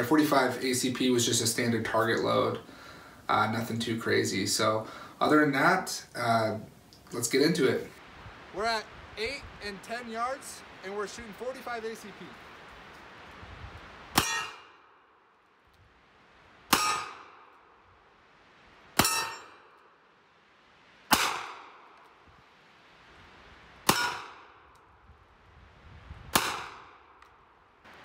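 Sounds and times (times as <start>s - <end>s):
metallic ring of steel target: 19.0s - 19.6s.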